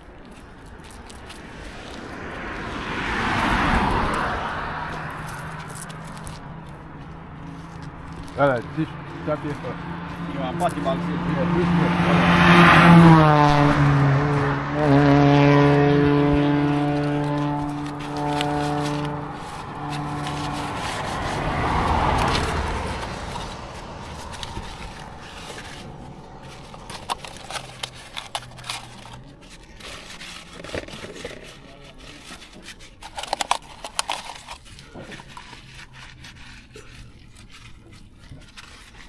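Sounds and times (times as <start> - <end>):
tissue paper scraping on chain: 5.1 - 11.0, 16.7 - 39.0.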